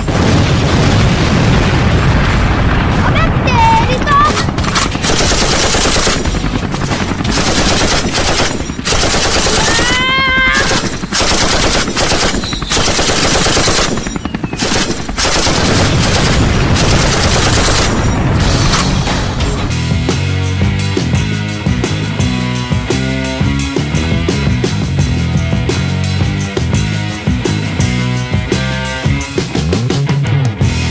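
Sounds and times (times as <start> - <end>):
automatic gunfire bursts: 3.2 - 19.0.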